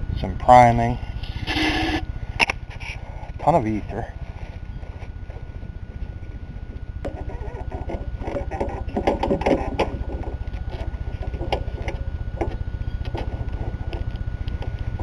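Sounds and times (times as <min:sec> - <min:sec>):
irregular rattling: 0:07.0 - 0:14.8
lawn mower engine puttering: 0:07.0 - 0:15.0.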